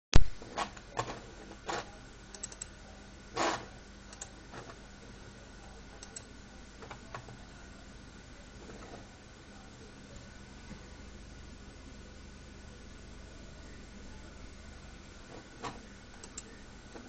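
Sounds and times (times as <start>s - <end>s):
desktop computer hum: 0.2s - 17.0s
mouse clicks: 2.4s - 2.7s, 6.0s - 6.3s, 16.2s - 16.5s.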